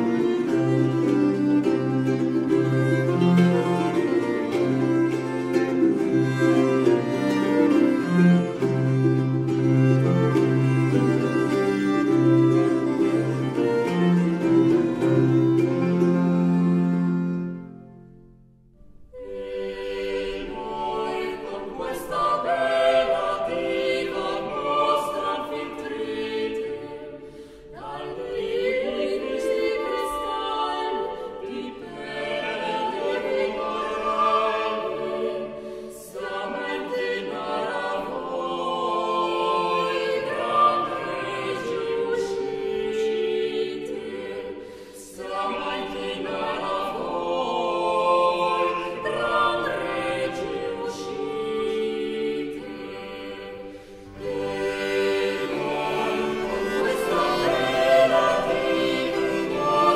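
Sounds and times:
choir singing: 0:00.0 - 0:18.2, 0:19.0 - 0:59.9.

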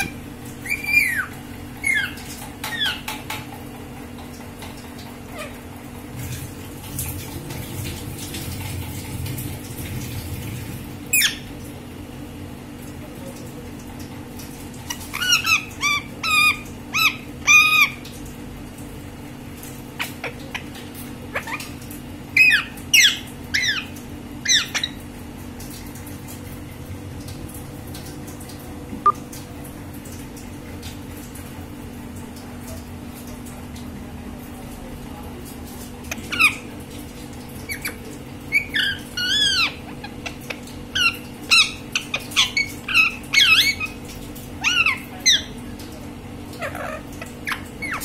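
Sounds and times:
parakeet calling: 0:00.0 - 0:03.2, 0:11.1 - 0:11.5, 0:14.9 - 0:18.0, 0:22.4 - 0:25.0, 0:36.1 - 0:36.7, 0:37.7 - 0:45.6, 0:46.6 - 0:48.0.

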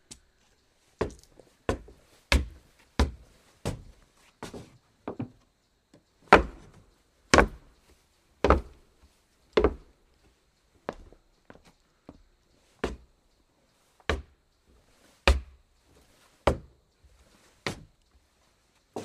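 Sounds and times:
footsteps on wooden floor: 0:01.0 - 0:05.4, 0:09.6 - 0:09.9.

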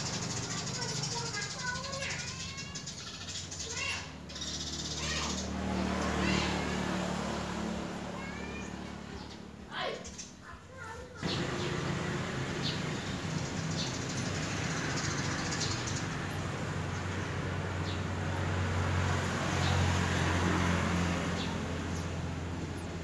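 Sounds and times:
road noise hiss: 0:00.0 - 0:23.0
low engine drone: 0:11.2 - 0:14.6.

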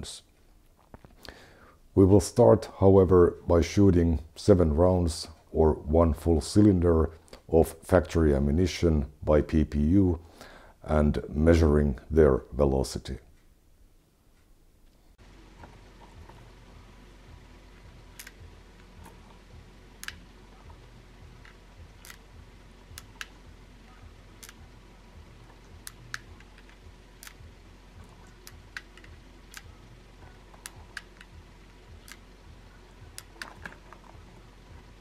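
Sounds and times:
revolver metallic clicks: 0:18.1 - 0:19.4, 0:20.0 - 0:23.6, 0:24.3 - 0:24.7, 0:25.4 - 0:32.3, 0:33.0 - 0:34.2.

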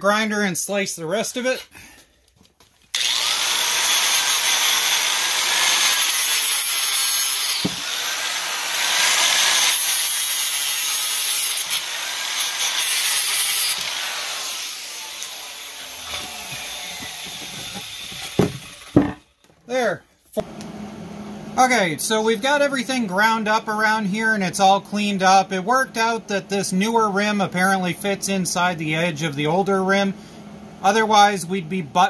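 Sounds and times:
angle grinder cutting tire: 0:03.0 - 0:19.2, 0:23.2 - 0:32.0.

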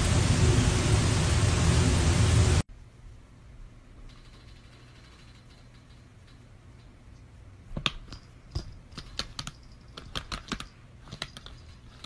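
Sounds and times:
low steady hum: 0:00.0 - 0:12.0
typing on laptop keyboard: 0:07.8 - 0:12.0.

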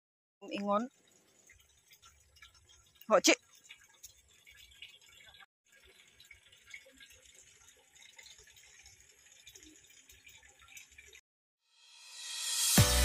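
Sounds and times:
outro music beat: 0:12.2 - 0:13.0.

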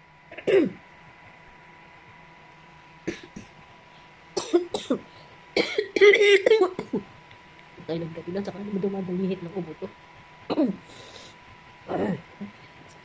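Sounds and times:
faint high hum: 0:00.0 - 0:13.0
woman coughing: 0:00.3 - 0:00.8, 0:03.1 - 0:03.6, 0:04.4 - 0:05.0, 0:05.6 - 0:07.0, 0:10.5 - 0:10.8.

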